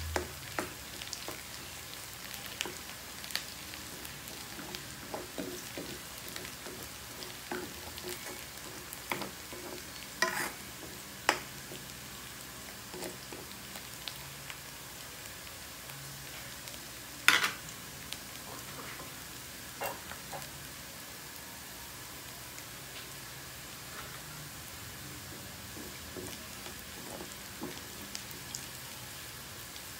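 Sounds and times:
garlic and onion sizzling in oil: 0.0 - 29.9
spatula scraping and knocking pan: 4.6 - 11.4.

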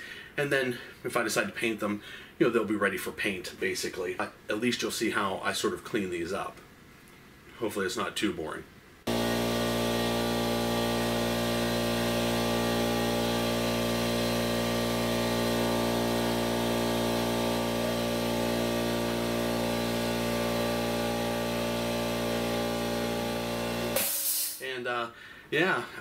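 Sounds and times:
power tool motor running: 9.1 - 24.6.

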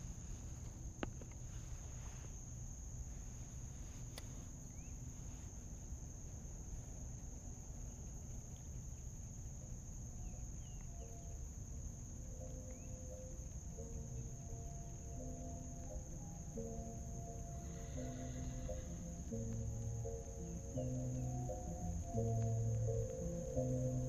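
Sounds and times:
insects droning: 0.0 - 24.0
low rumbling noise: 10.0 - 24.0.

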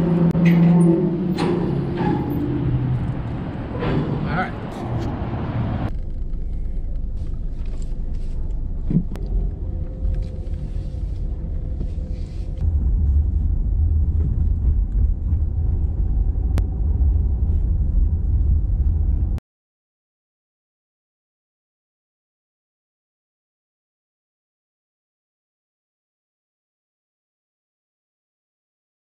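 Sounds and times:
car interior rumble: 0.0 - 19.4.

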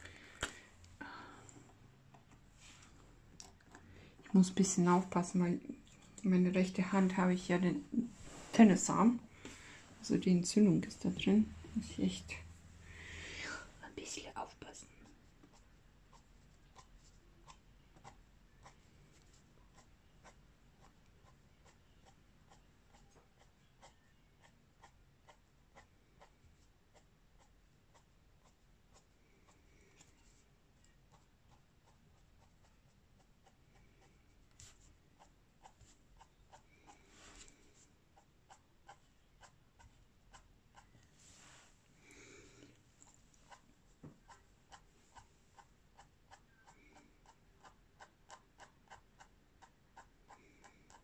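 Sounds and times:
pen scratching on paper: 15.0 - 30.3, 31.1 - 41.1.

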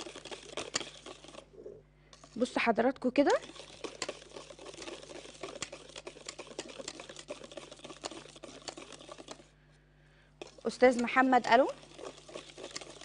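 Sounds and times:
whisk clinking in metal bowl: 0.0 - 1.4, 3.3 - 9.5, 10.4 - 13.0.

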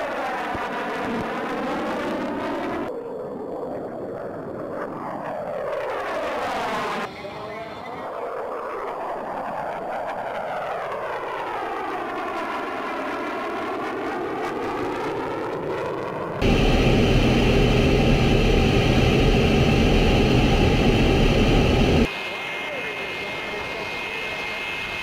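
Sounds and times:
jet passing overhead: 13.6 - 25.0
jet cockpit engine roar: 16.4 - 25.0.

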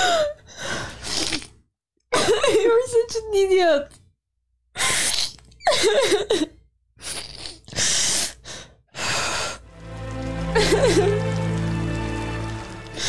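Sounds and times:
gasping sniffling breaths: 7.0 - 9.6.

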